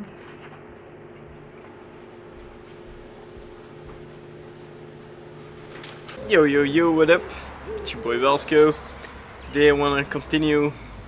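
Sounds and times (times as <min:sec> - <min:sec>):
bird cheeping high: 0:00.0 - 0:00.5, 0:01.5 - 0:01.8, 0:03.4 - 0:03.6
low hum: 0:00.0 - 0:11.0.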